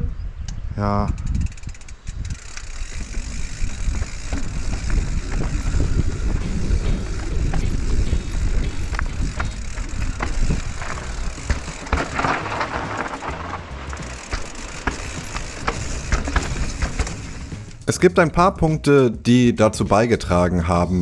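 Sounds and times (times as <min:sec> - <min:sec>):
wind rumbling on microphone: 0:00.0 - 0:17.8
bike clicking and rattling: 0:00.8 - 0:18.0
tyres scraping loose ground: 0:01.1 - 0:17.9
tyres crunching over dirt and stones: 0:02.1 - 0:17.9.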